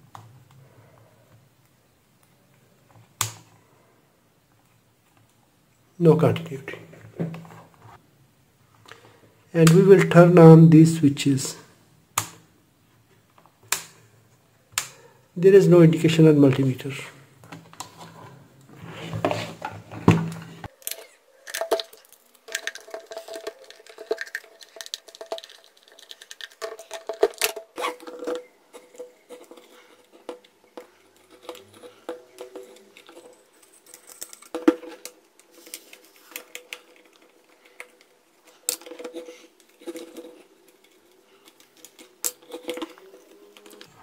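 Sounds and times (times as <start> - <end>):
plastic housing clicks and rattles: 20.7 - 44.0.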